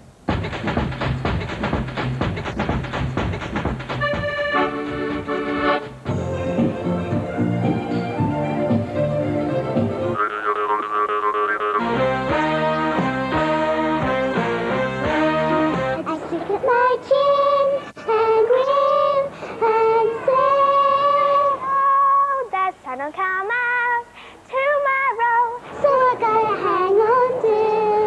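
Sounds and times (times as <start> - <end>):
girl singing solo: 16.0 - 28.0.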